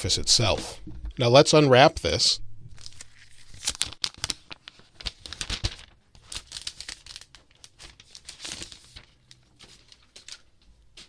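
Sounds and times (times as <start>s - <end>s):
plastic film crinkling: 2.7s - 11.0s.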